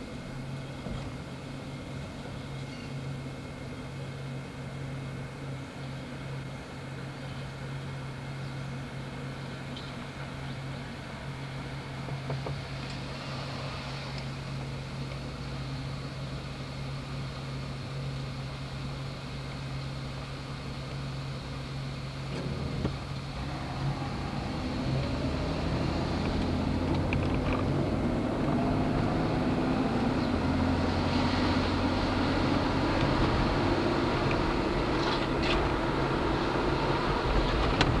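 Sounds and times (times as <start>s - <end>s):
streetcar running on tracks: 0.0s - 38.0s
low hum: 20.8s - 38.0s.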